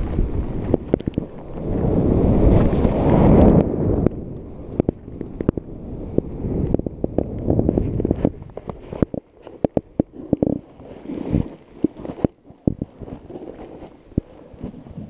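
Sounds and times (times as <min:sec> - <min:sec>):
clicks and knocks of skis and poles: 0:00.0 - 0:01.8, 0:02.5 - 0:15.0
wind rushing over microphone: 0:00.0 - 0:15.0
skis hissing through snow: 0:10.6 - 0:12.1.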